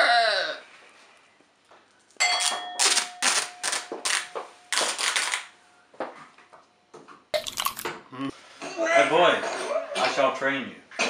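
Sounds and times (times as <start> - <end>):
tape ripping off roll: 2.8 - 5.5.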